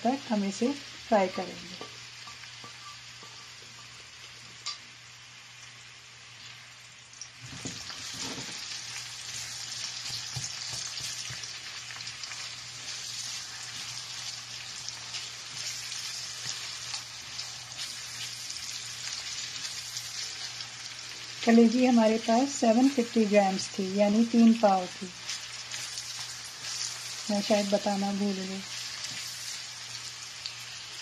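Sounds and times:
onions sizzling in hot oil: 0.0s - 31.0s
spatula knocking on pan: 10.0s - 11.5s.

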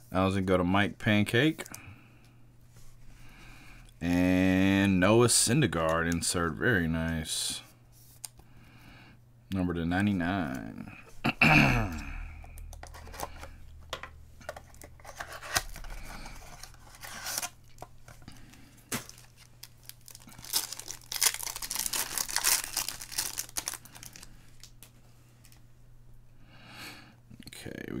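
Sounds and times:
wrapper tearing and crinkling: 18.9s - 24.8s.

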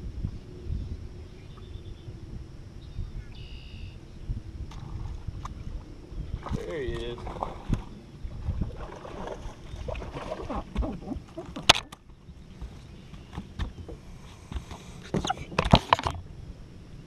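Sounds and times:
rustling on boat deck: 4.6s - 16.3s.

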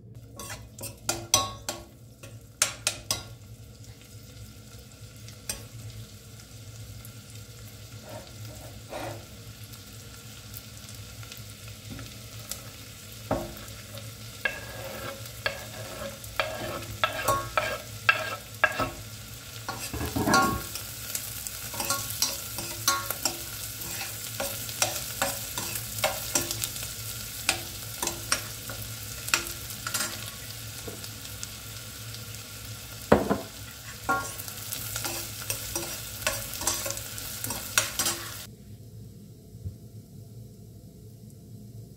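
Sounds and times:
onions sizzling in a pan: 0.0s - 41.9s
metal spoon scraping a pot: 0.4s - 1.8s, 8.0s - 9.3s, 14.4s - 19.0s, 19.7s - 20.8s, 21.7s - 26.7s, 35.0s - 38.5s
spoon clinking against pot: 0.4s - 3.3s, 14.4s - 19.0s, 19.7s - 20.8s, 21.8s - 26.6s, 34.1s - 34.4s.

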